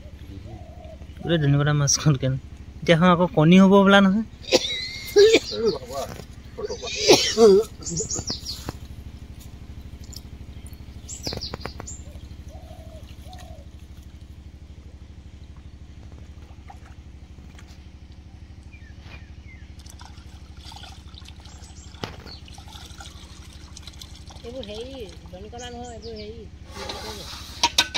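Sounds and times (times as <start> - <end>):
birds chirping: 0.0 - 27.9
low machine hum: 0.0 - 27.9
shallow water sloshing: 7.1 - 26.0.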